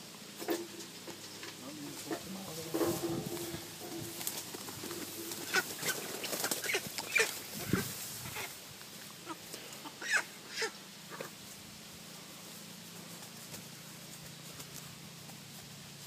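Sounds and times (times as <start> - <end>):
chicken clucking and squawking: 0.4 - 8.6, 9.2 - 11.4.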